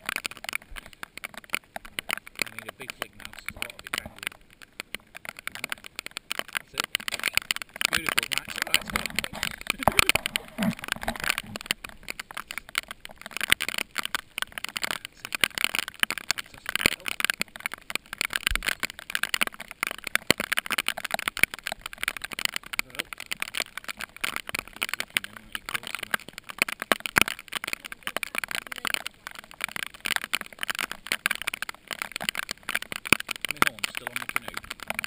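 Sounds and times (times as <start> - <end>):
rain pattering on kayak: 0.0 - 35.0.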